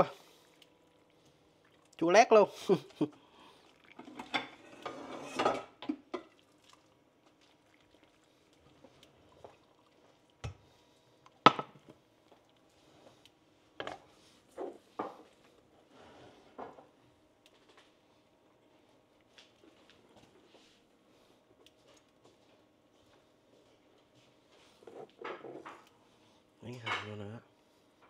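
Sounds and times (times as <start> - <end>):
tableware scraping and rustling: 4.1 - 5.8, 24.8 - 25.8, 26.7 - 27.2.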